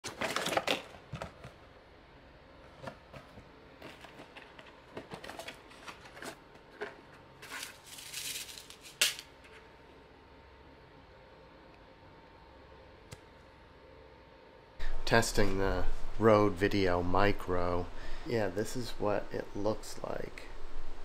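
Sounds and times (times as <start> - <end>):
plastic and cardboard packaging rustling: 0.0 - 1.6, 2.6 - 9.2.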